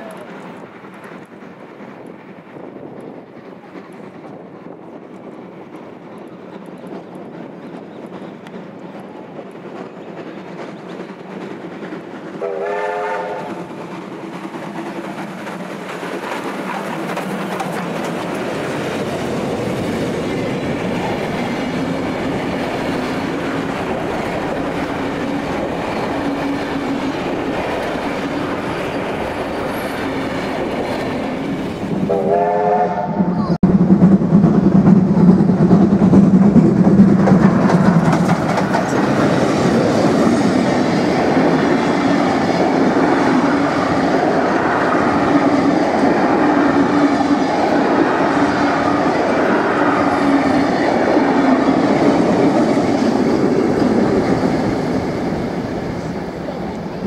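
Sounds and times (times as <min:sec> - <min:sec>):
wheels clicking over rail joints: 0:00.0 - 0:12.4, 0:13.3 - 0:32.0, 0:35.2 - 0:46.5
train carriages rolling past: 0:00.0 - 0:57.0
train whistle: 0:12.4 - 0:13.6, 0:32.1 - 0:33.4.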